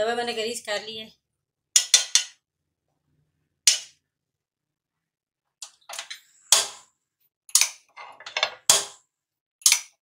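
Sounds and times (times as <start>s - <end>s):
hot pan popping and clicking: 1.8s - 2.4s, 3.7s - 4.0s, 5.9s - 6.9s, 7.5s - 9.0s, 9.6s - 10.0s.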